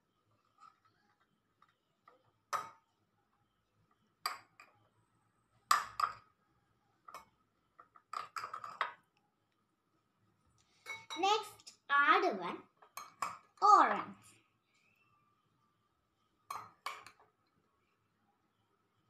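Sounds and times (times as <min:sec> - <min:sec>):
spoon clinking glass bowls: 0:07.0 - 0:09.0, 0:10.8 - 0:11.3, 0:12.8 - 0:13.6, 0:16.4 - 0:17.2.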